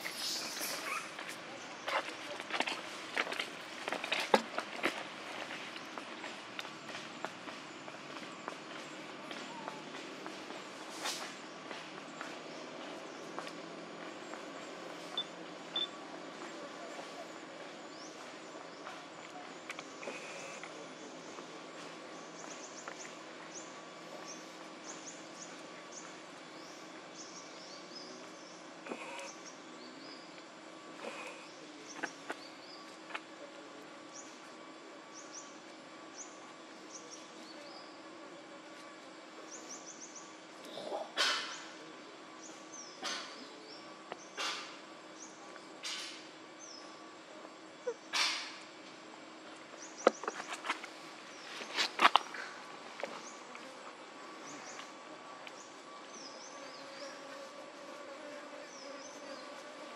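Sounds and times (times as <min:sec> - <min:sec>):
insects hissing: 0:00.0 - 0:03.8, 0:16.9 - 0:33.2
rustling noise: 0:50.2 - 0:52.4.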